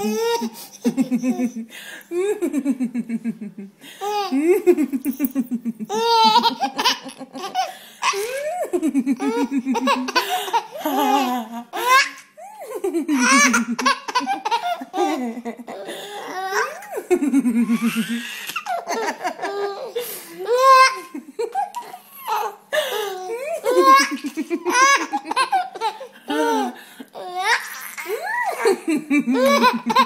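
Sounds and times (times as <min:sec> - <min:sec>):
baby laughing: 0:00.0 - 0:01.7, 0:04.0 - 0:17.0, 0:17.6 - 0:30.0.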